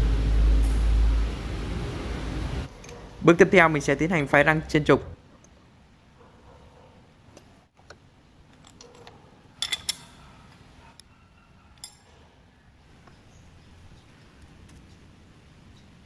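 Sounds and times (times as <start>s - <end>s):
faint workshop background: 0.0s - 16.0s
metal tools clinking: 8.5s - 10.4s, 11.8s - 12.2s.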